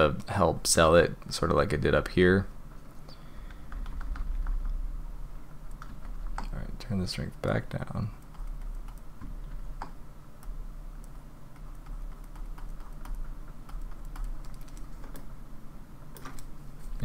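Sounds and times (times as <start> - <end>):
low steady hum: 0.0 - 17.0
keyboard keys clicking: 8.2 - 15.3.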